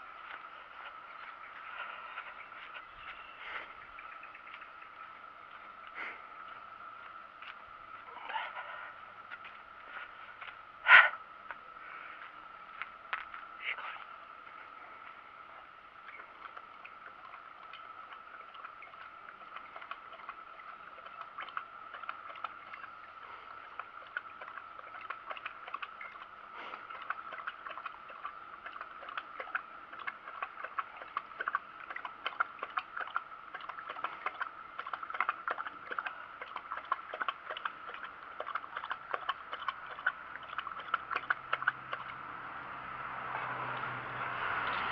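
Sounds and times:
dog lapping from steel bowl: 16.0 - 42.3.

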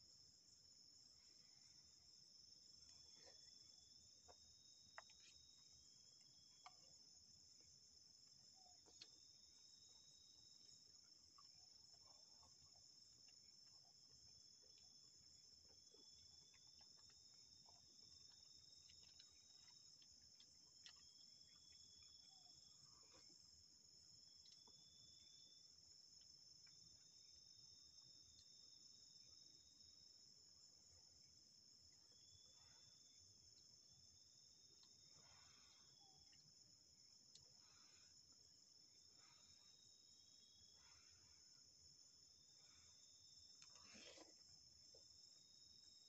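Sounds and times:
high-pitched insect chorus: 0.0 - 46.0.

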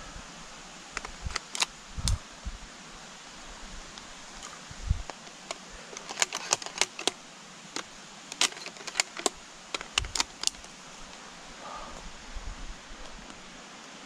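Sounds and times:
rifle metallic clicks and rattles: 1.0 - 2.2, 5.0 - 10.7.

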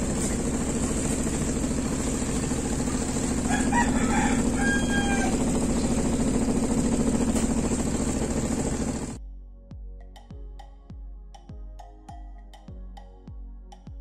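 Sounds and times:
washing machine spinning: 0.0 - 9.2
rooster crowing: 3.4 - 6.1.

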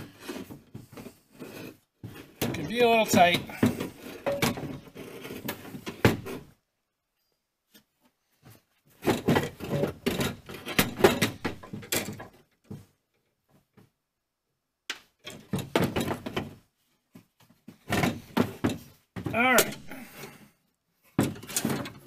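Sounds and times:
metal knocking and rattling: 2.1 - 6.4, 9.0 - 12.9.

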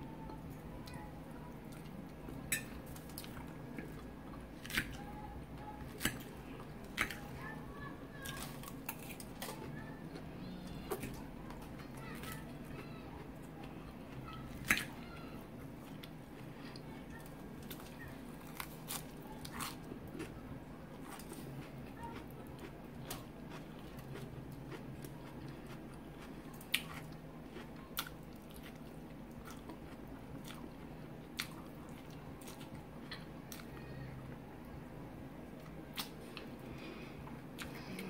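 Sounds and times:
low steady hum: 0.0 - 38.0
chewing and crunching food: 0.2 - 34.8, 35.4 - 38.0.

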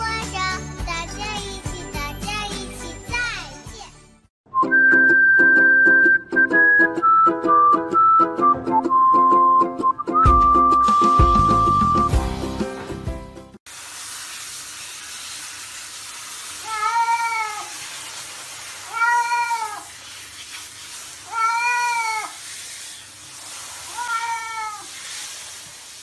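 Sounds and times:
shower water spraying: 10.8 - 26.0
cat meowing: 16.6 - 17.7, 18.8 - 19.9, 21.3 - 22.4, 23.9 - 25.0.

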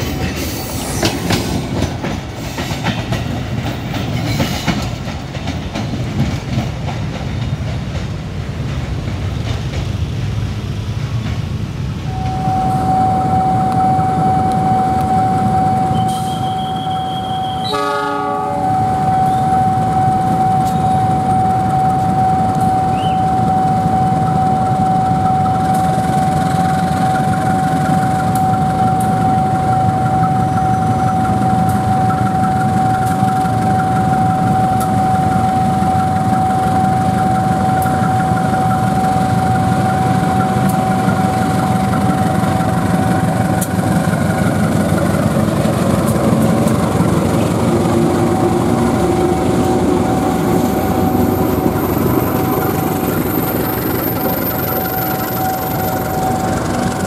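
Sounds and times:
diesel locomotive engine rumbling: 0.0 - 57.0
level crossing warning tone: 12.0 - 57.0
train horn blast: 12.1 - 23.3.

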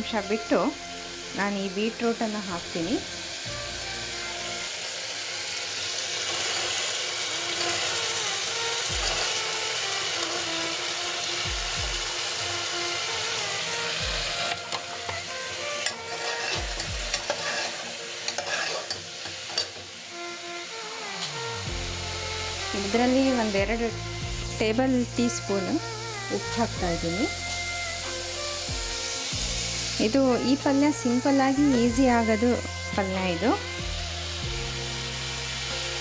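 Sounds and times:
vegetables sizzling in hot oil: 0.0 - 36.0
ladle scraping and clinking on pot: 15.8 - 19.8.

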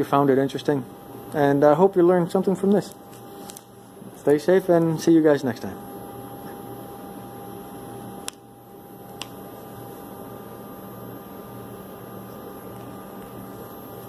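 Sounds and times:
electrical hum and hiss: 0.0 - 14.0.

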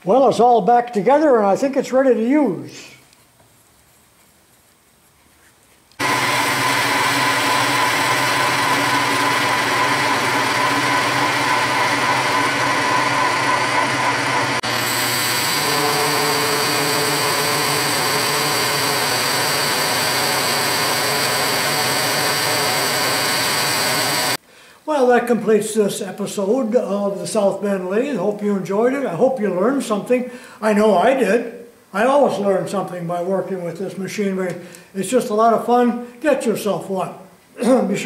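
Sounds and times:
lathe cutting metal whine: 6.0 - 24.4.

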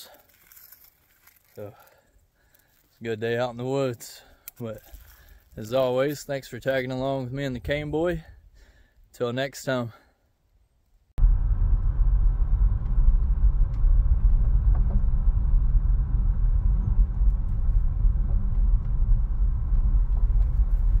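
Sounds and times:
car rumble on gravel road: 11.2 - 21.0.

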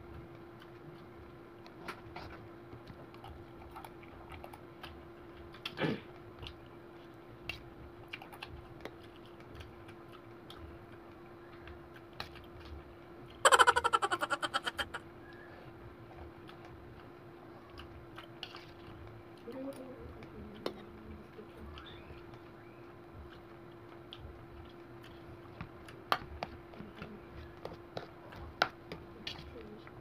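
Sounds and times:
steady hum: 4.9 - 27.6.

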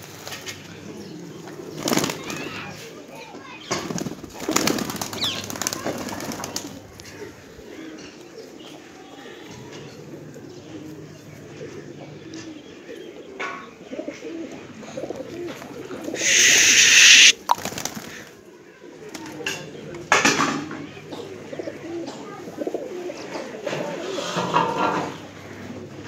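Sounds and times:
pigeons cooing: 0.6 - 2.9, 4.4 - 19.0, 20.9 - 26.0
loud rush of noise: 16.2 - 17.4.

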